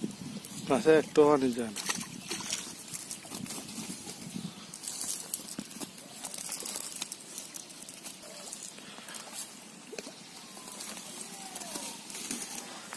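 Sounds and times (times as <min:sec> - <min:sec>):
net and grass rustling: 0:00.0 - 0:12.9.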